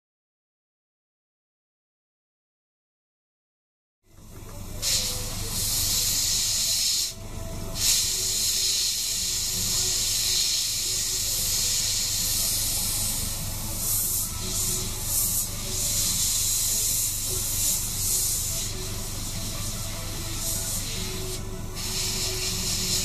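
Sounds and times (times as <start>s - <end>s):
steady low hum: 4.1s - 23.0s
airbrush hissing: 4.6s - 23.0s.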